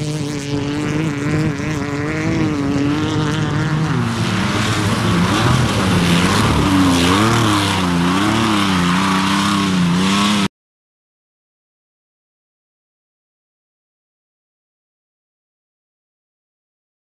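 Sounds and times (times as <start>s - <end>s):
truck engine revving: 0.0s - 10.5s.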